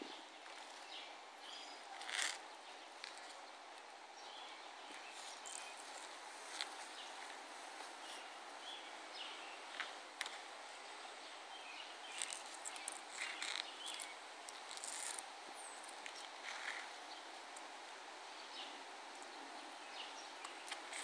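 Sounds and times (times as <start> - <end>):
steady background hiss: 0.0 - 21.0
high bird chirps: 11.6 - 14.2.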